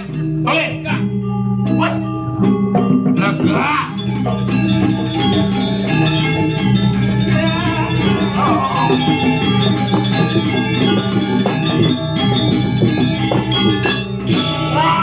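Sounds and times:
gamelan ensemble music: 0:00.0 - 0:15.0.

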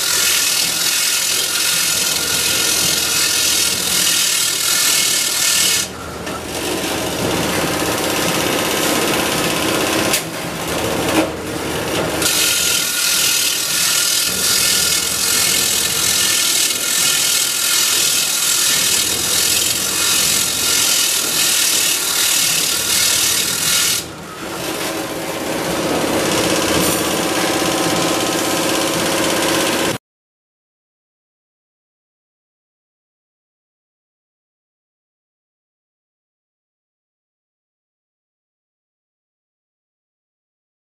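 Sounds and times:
grinding wheel grinding steel rods: 0:00.0 - 0:30.0.

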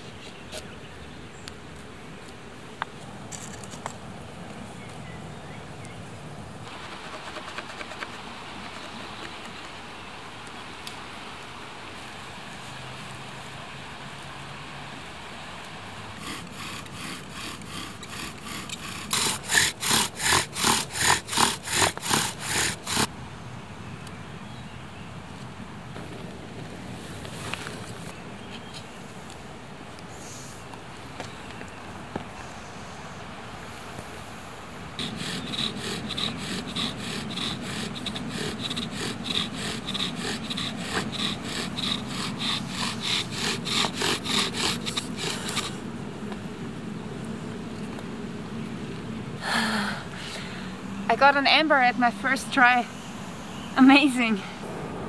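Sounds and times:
bow drill rasping wood on wood: 0:16.2 - 0:23.1, 0:35.0 - 0:45.8.

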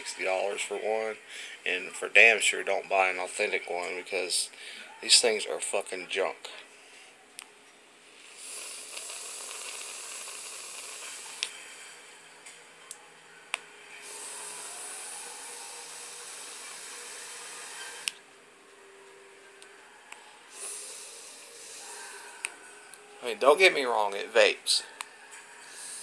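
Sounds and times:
vape coil hissing and sizzling: 0:08.2 - 0:12.2, 0:13.9 - 0:18.2, 0:20.5 - 0:22.6, 0:25.6 - 0:26.0.

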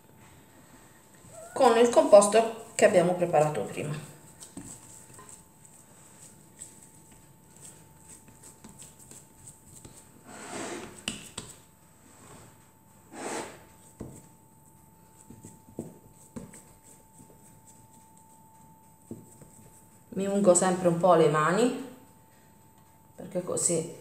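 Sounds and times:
hands patting soft food mixture: 0:04.0 - 0:10.2, 0:10.9 - 0:11.8, 0:13.8 - 0:20.2.

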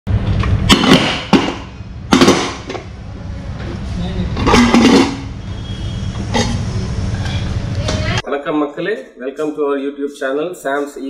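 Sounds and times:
steady low hum: 0:00.1 - 0:09.2
sharp knocks: 0:00.6 - 0:02.9.

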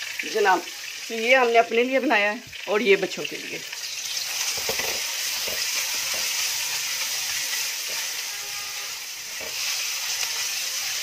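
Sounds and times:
onions sizzling in oil: 0:00.0 - 0:11.0
spatula stirring: 0:03.8 - 0:11.0.

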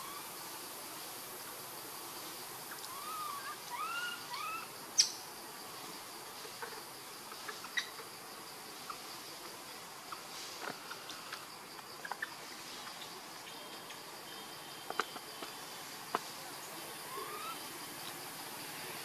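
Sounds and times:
insects droning: 0:00.0 - 0:19.0
rising and falling calls: 0:17.1 - 0:17.6.

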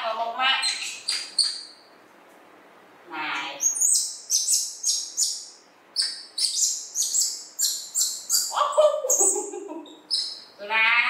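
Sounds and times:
monkey chirping squeaks: 0:00.6 - 0:01.9, 0:03.6 - 0:10.5.

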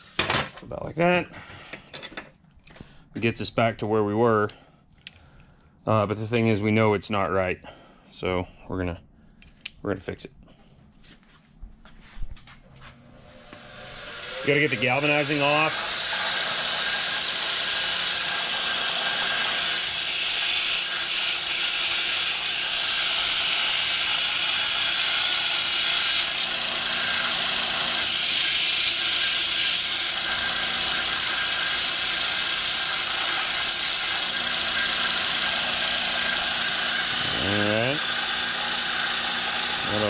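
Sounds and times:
belt sander grinding metal: 0:13.2 - 0:40.0.

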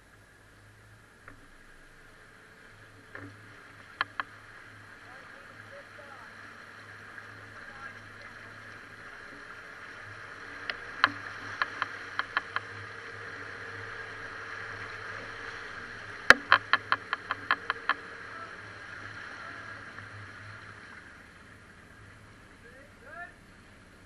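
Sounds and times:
engine running at low speed: 0:00.0 - 0:24.0
sharp clicks: 0:03.1 - 0:04.4, 0:10.6 - 0:12.8, 0:16.2 - 0:18.0.

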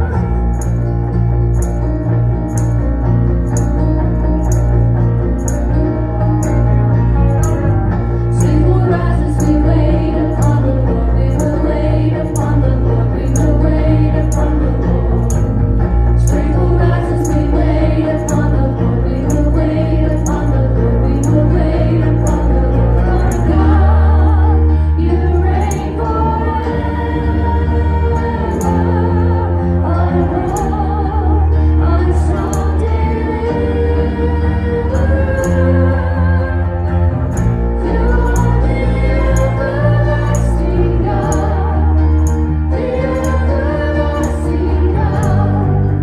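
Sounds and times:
deep bass line: 0:00.0 - 0:46.0
keyboard: 0:00.0 - 0:46.0
steady ticking beat: 0:00.3 - 0:24.0, 0:28.2 - 0:29.6, 0:32.3 - 0:33.7, 0:34.9 - 0:36.0, 0:36.9 - 0:45.5
women singing: 0:08.3 - 0:15.4, 0:16.1 - 0:37.1, 0:37.8 - 0:46.0.

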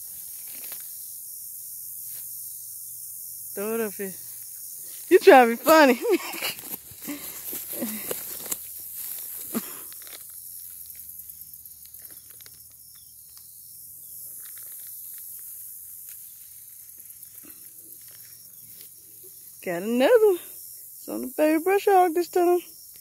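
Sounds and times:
dry grass rustling: 0:00.0 - 0:01.2, 0:03.6 - 0:19.7.

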